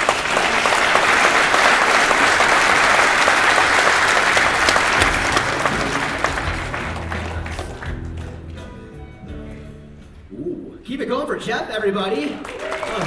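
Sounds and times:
audience applauding: 0:00.0 - 0:08.8, 0:12.1 - 0:13.0.

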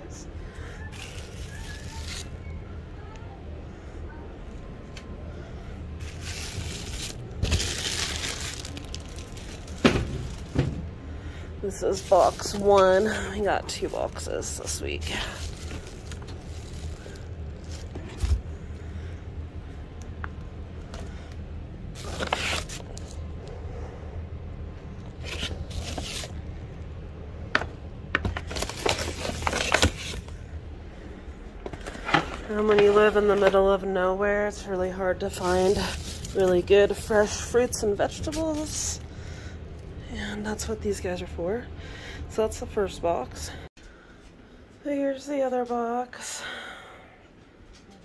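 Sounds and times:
plastic packaging crinkling: 0:00.8 - 0:02.4, 0:06.0 - 0:10.7, 0:11.8 - 0:18.4, 0:21.9 - 0:23.2, 0:25.2 - 0:26.4, 0:28.2 - 0:30.4, 0:35.3 - 0:37.1
plastic containers crinkling and clicking: 0:27.5 - 0:30.4.

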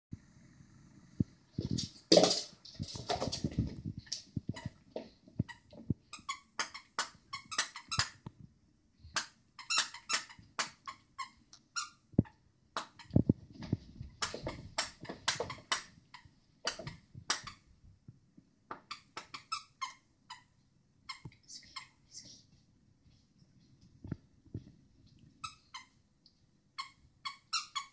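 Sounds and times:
squeaky toy squeaking: 0:05.5 - 0:08.2, 0:09.2 - 0:12.0, 0:18.9 - 0:20.5, 0:25.4 - 0:26.0, 0:26.8 - 0:27.9.

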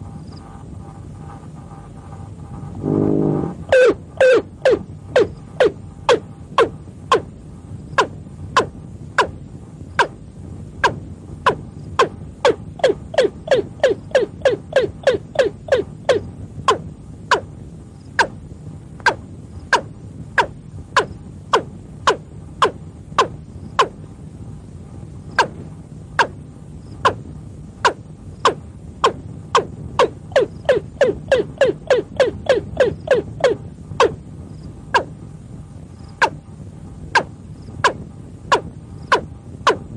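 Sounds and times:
low steady hum: 0:00.0 - 0:39.9
bird calling: 0:02.9 - 0:07.3, 0:12.0 - 0:17.4, 0:27.8 - 0:34.2
bird calling with descending notes: 0:30.3 - 0:34.2.

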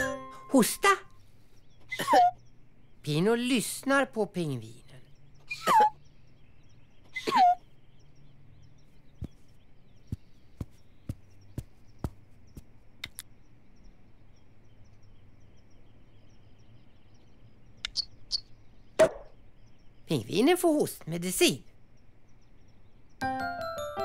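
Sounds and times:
cartoon penguin coughing: 0:01.9 - 0:02.4, 0:05.5 - 0:06.0, 0:07.2 - 0:07.6
faint clicks: 0:13.0 - 0:13.3.

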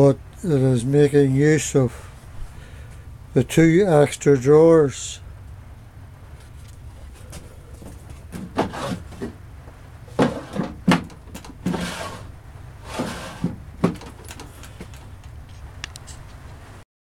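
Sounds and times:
drawers sliding open and shut: 0:08.2 - 0:09.4, 0:10.1 - 0:14.7
drawer knocking shut: 0:08.3 - 0:09.4, 0:10.1 - 0:12.3, 0:12.9 - 0:14.2.

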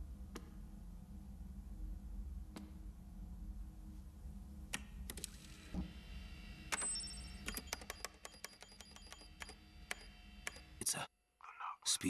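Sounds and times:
low steady hum: 0:00.0 - 0:07.9.

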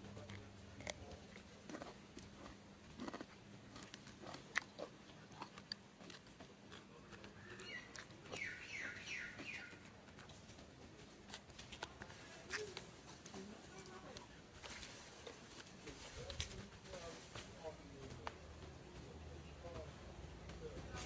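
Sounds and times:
monkey chewing crunchily: 0:00.0 - 0:15.7
bird chirping: 0:07.4 - 0:09.9.

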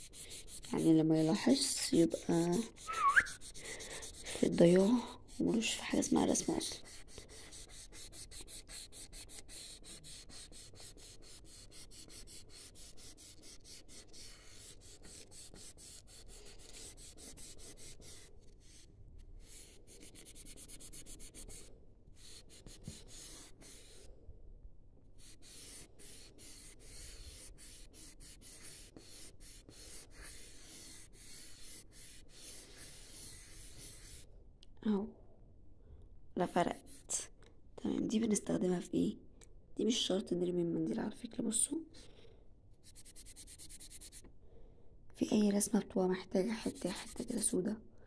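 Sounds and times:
tissue rubbing on paper: 0:25.2 - 0:34.2, 0:46.6 - 0:47.5.

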